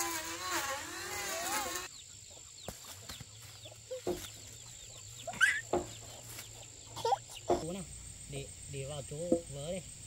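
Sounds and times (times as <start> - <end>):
chickens clucking: 1.8 - 7.8.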